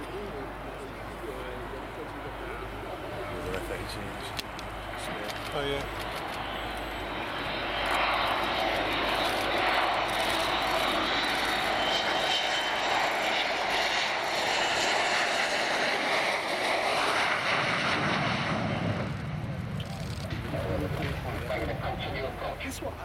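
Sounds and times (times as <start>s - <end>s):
jet roar: 0.0s - 23.0s.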